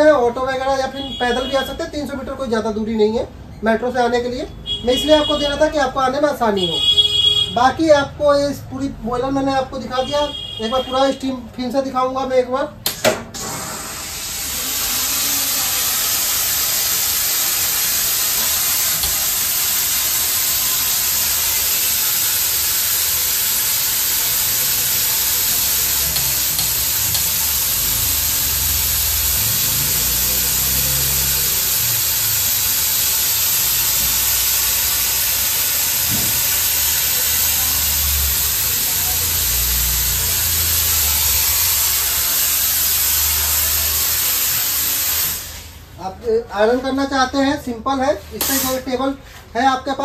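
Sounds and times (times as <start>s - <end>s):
steam iron hissing: 13.3s - 46.0s, 48.3s - 49.4s.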